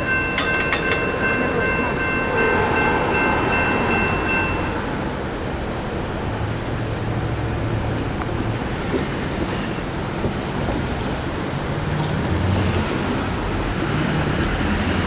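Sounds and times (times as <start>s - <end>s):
railroad crossing bell ringing: 0.0s - 5.2s
rumble of passing vehicles: 0.0s - 15.0s.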